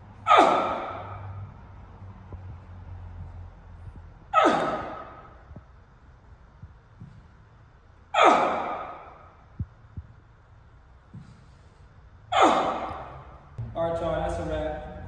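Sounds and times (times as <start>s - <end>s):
man exhaling forcefully: 4.3s - 5.4s.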